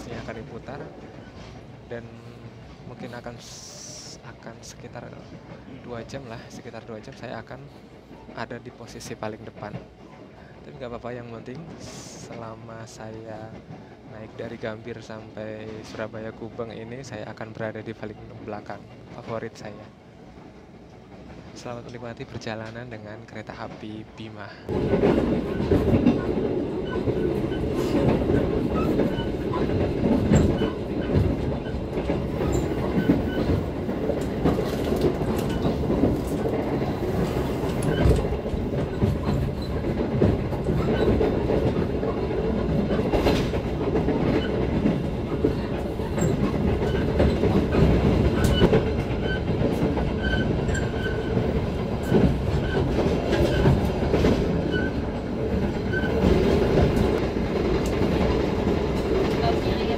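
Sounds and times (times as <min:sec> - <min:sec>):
train rumbling: 0:00.0 - 0:59.9
wheels clacking and knocking: 0:24.7 - 0:59.9.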